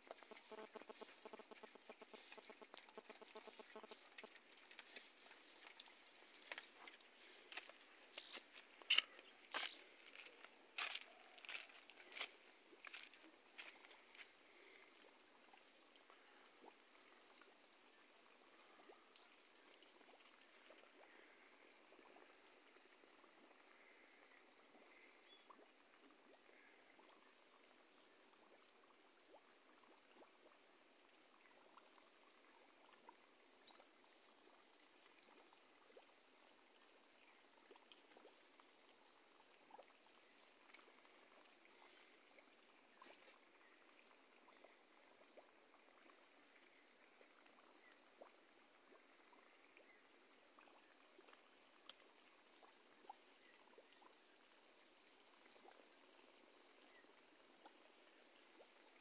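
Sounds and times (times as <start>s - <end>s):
small ticks: 0.0s - 14.9s, 51.2s - 52.1s
faint outdoor hiss: 0.0s - 59.0s.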